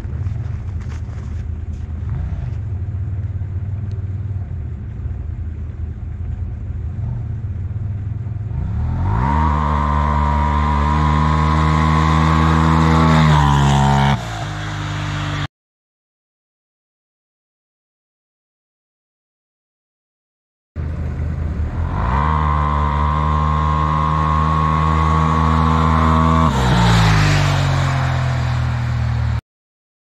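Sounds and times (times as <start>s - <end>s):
off-road vehicle engine accelerating: 0.0s - 4.7s, 6.2s - 15.5s, 20.8s - 29.4s.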